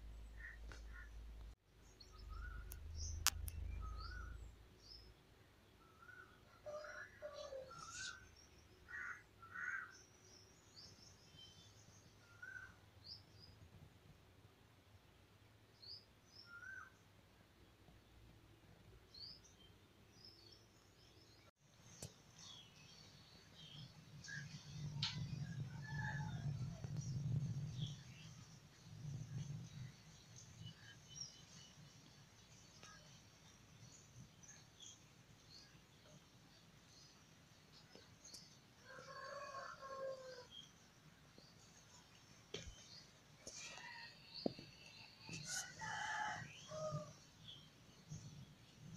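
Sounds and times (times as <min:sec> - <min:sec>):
low hum: 0:00.0 - 0:04.7
faint small birds chirping: 0:00.0 - 0:13.9, 0:15.7 - 0:48.9.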